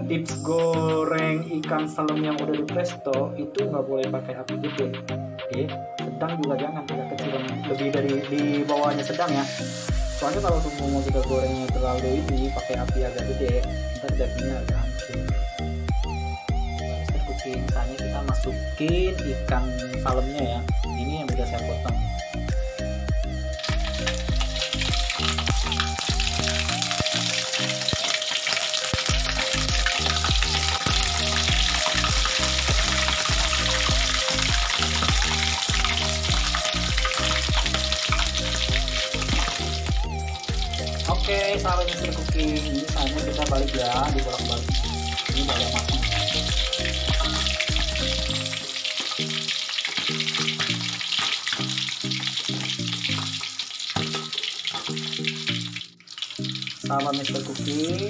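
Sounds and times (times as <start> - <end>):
background music with bouncing bass: 0.0 - 58.0
fish frying in hot oil: 8.4 - 13.9, 22.4 - 58.0.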